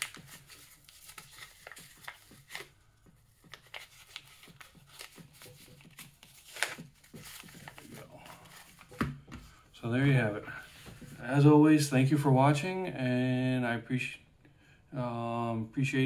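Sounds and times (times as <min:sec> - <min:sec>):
plastic packaging crinkling: 0:00.0 - 0:02.7, 0:03.4 - 0:09.0.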